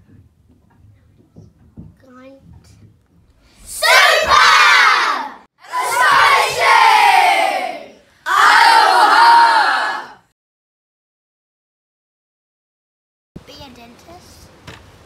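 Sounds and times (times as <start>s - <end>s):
children shouting in unison: 3.7s - 10.2s.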